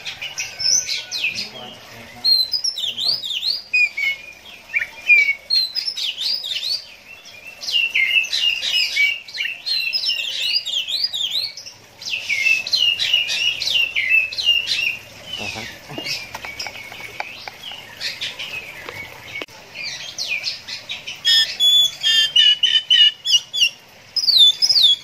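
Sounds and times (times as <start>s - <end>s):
bird singing whistled notes: 21.2s - 25.0s.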